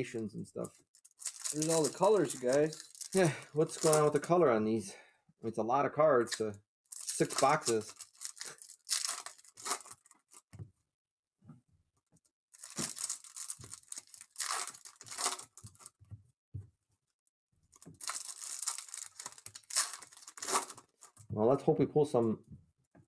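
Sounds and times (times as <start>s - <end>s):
plastic wrappers tearing and crinkling: 1.0s - 4.2s, 6.9s - 10.4s, 12.6s - 15.9s, 17.8s - 21.2s.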